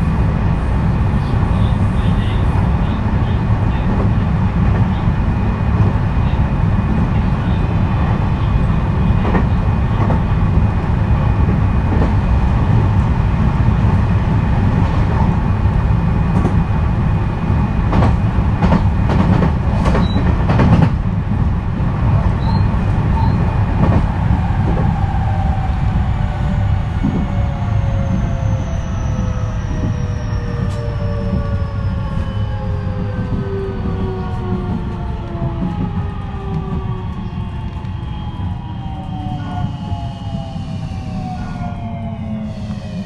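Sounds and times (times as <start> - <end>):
train wheels rumbling on rail: 0.0 - 43.0
electric train inverter tone: 22.3 - 43.0.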